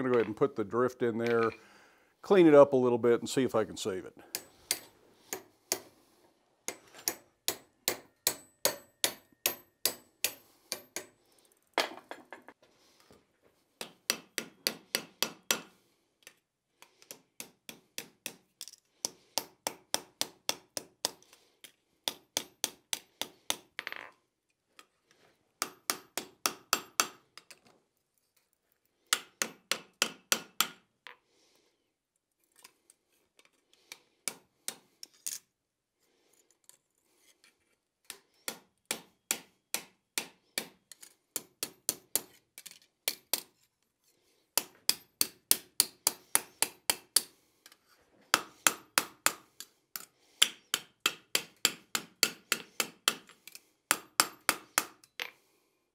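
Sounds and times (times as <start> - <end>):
hammer striking hot steel: 6.7 - 11.1.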